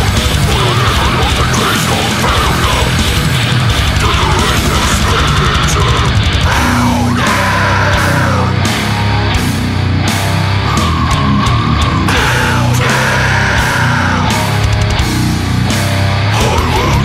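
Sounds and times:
loud heavy metal music: 0.0 - 17.0.

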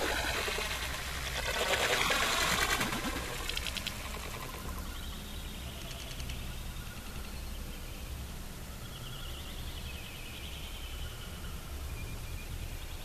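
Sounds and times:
water splashing on lake: 0.0 - 4.6
faint outdoor background: 0.0 - 13.0.

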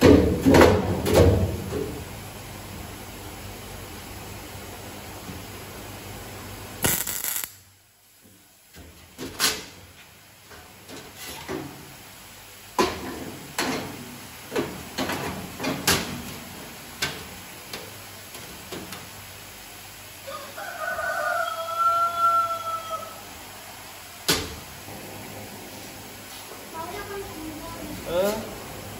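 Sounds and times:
rooster crowing: 20.2 - 23.6.

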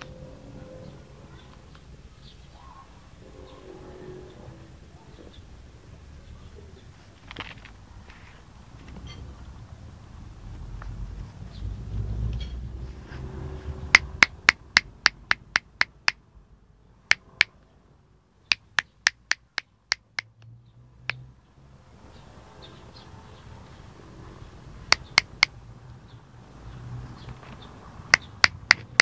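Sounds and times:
fingers snapping: 14.0 - 16.2, 18.5 - 20.3, 24.9 - 25.5, 28.1 - 29.0.

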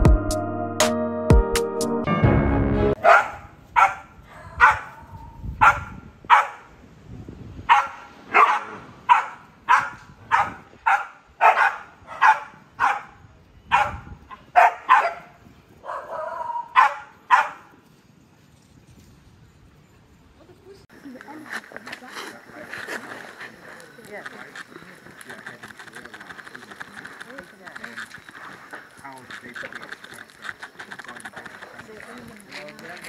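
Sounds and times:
small dogs barking: 3.0 - 6.7, 7.7 - 17.7.

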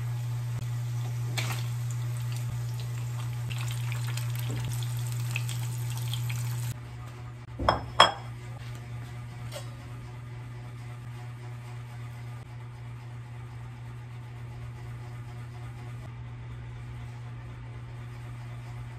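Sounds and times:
food sizzling in oil: 0.0 - 6.7
steady low hum: 0.0 - 18.9.

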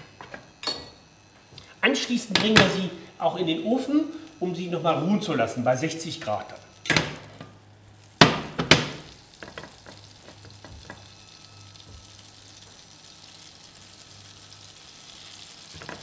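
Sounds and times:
butter crackling in frying pan: 6.2 - 16.0.

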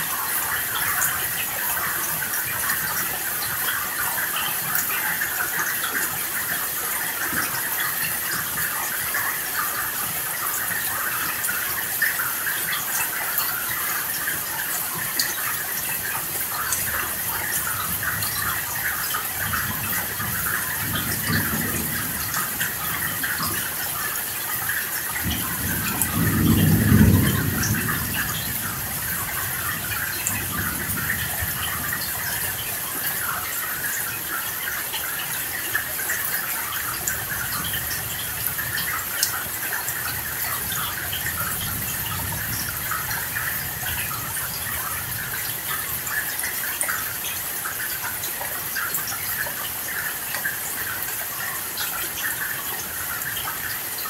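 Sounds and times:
steady rain hissing: 0.0 - 54.0
thunder rolling: 19.9 - 23.7, 25.2 - 32.3.

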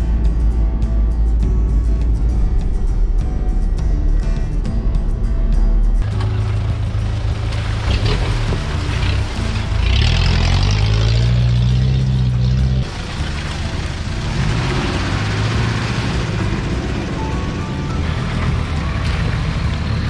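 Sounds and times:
background music: 0.0 - 20.0
off-road engines labouring: 6.0 - 20.0
water splashing under tyres: 6.0 - 20.0.

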